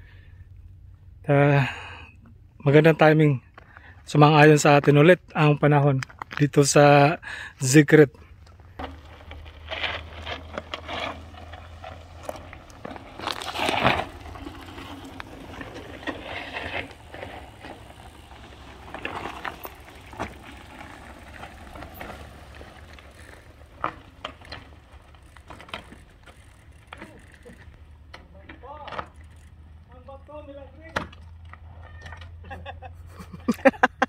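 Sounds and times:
bike tyres crunching over rocks: 0:06.0 - 0:32.0
clicks and scrapes: 0:08.8 - 0:17.8.

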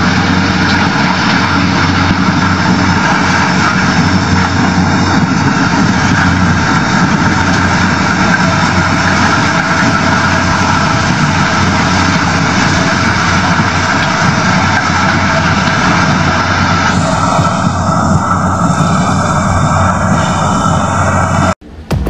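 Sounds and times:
combine harvester running: 0:00.0 - 0:21.6
low hum: 0:00.0 - 0:22.0.

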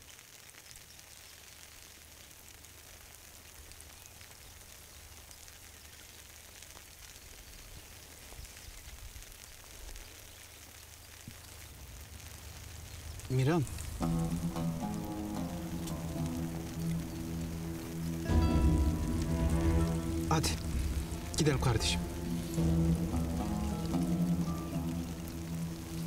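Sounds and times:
light rain hissing: 0:00.0 - 0:26.0
low rumble: 0:12.8 - 0:26.0.

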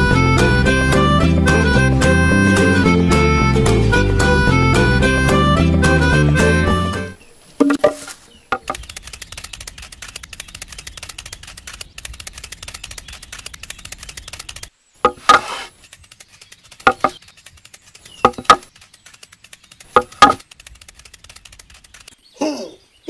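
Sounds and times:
wooden sticks knocking: 0:07.6 - 0:08.8, 0:15.0 - 0:15.7, 0:16.8 - 0:17.2, 0:18.2 - 0:18.7, 0:19.9 - 0:20.5
faint rapid crackling: 0:07.9 - 0:22.2.

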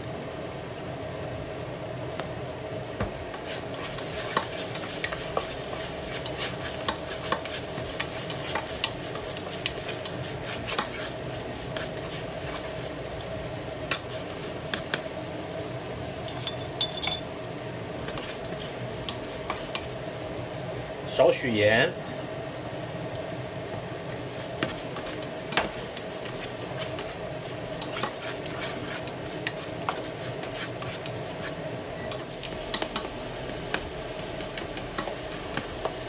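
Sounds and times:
garlic sizzling in oil: 0:00.0 - 0:36.0
spatula scraping and tapping pan: 0:03.0 - 0:15.0, 0:18.0 - 0:20.0, 0:24.1 - 0:36.0.

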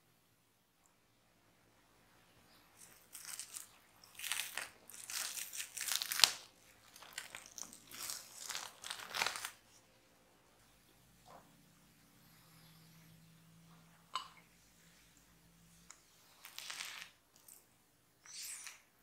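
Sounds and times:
cling film crinkling: 0:02.8 - 0:09.6, 0:16.4 - 0:17.5.

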